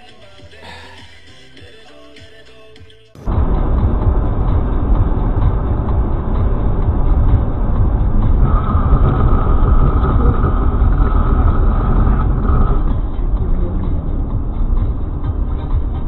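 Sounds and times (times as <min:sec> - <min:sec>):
steady high tone: 0:03.3 - 0:15.8
car road and engine rumble: 0:03.3 - 0:16.0.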